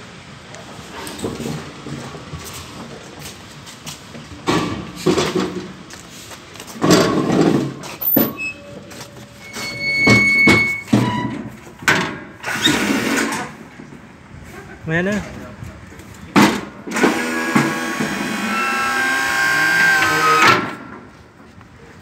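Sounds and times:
metal cylinders scraping and clanking: 6.8 - 11.6.

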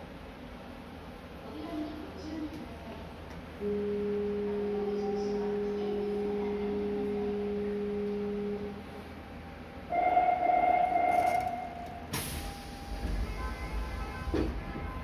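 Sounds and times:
high electronic warning tone: 3.6 - 8.8, 9.9 - 15.0
low electronic warning tone: 3.6 - 15.0.

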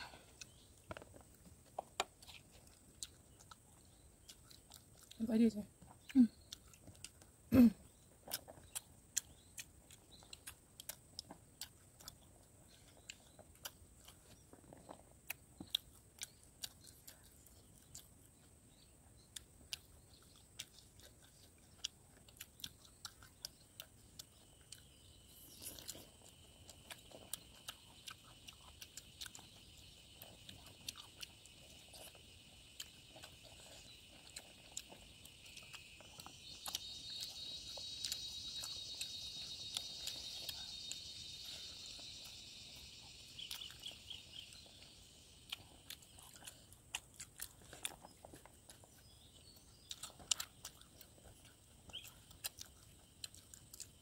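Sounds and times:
mouth clicks chewing food: 0.0 - 54.0.

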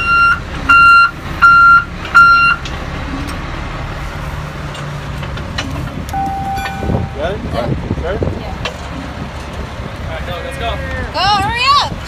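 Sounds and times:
truck reversing alarm beeping: 0.0 - 2.6, 6.1 - 7.6
truck engine idling: 0.0 - 11.2
low-pitched tone: 6.1 - 7.7.

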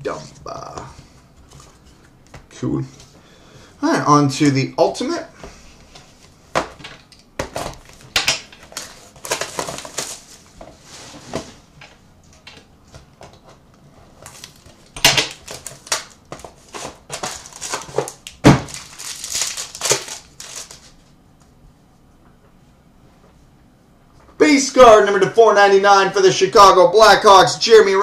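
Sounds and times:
plastic wrap crinkling and tearing: 7.6 - 10.4, 14.2 - 21.1.

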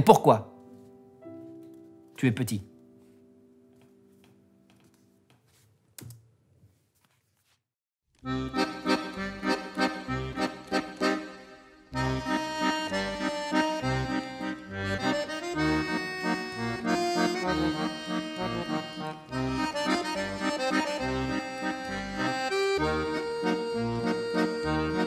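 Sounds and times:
accordion playing a waltz: 8.2 - 25.0.

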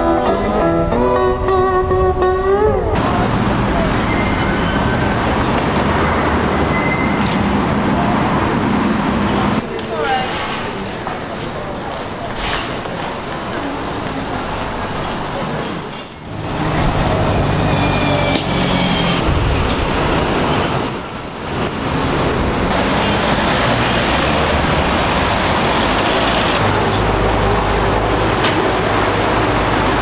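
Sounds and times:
heavy vehicle engine rumble: 1.4 - 30.0
traffic engine hum and tyre noise: 2.7 - 30.0
high-pitched squeal: 3.0 - 7.3, 17.2 - 19.4, 20.5 - 22.8.

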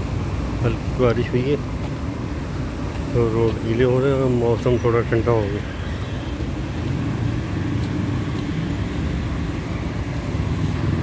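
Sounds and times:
street traffic rumble: 0.0 - 11.0.

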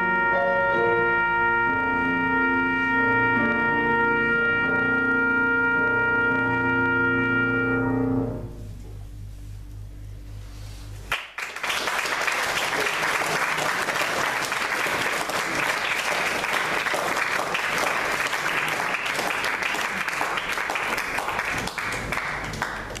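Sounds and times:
audience applauding: 11.1 - 23.0.

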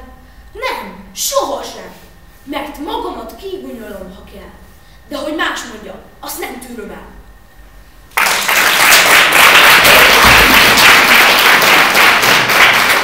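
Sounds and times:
audience applauding: 8.1 - 13.0.

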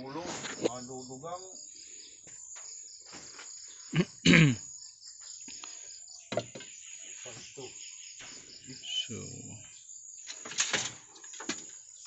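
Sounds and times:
crickets chirring: 0.0 - 12.0
faint clicks and calls: 5.4 - 5.9.

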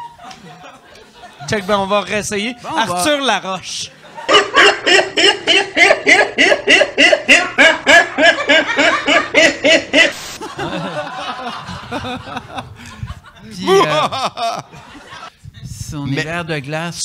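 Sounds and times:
man laughing loudly: 4.0 - 15.3.

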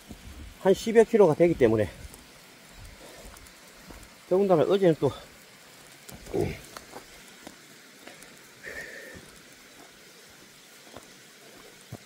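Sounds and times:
footsteps on mountain path: 0.0 - 0.6, 1.4 - 4.2, 6.1 - 8.3, 9.1 - 12.0
heavy breath: 8.6 - 9.3.

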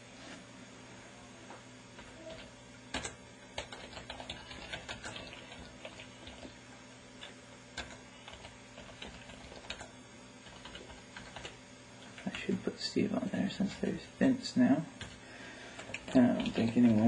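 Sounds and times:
typing on a computer keyboard: 2.3 - 6.5, 7.2 - 11.5, 15.8 - 17.0.

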